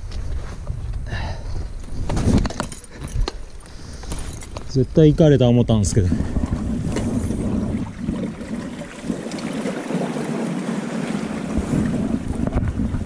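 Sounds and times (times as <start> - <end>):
sea water lapping on rocks: 5.9 - 13.0.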